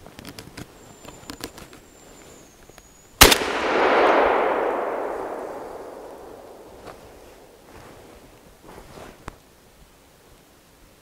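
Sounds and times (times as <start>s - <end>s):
shotgun shot echoing: 3.2s - 7.6s.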